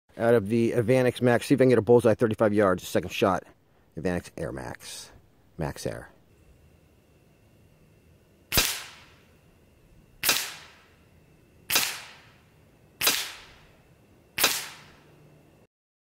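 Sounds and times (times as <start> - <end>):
air rifle shots: 8.5 - 9.3, 10.2 - 11.0, 11.7 - 13.8, 14.4 - 15.1.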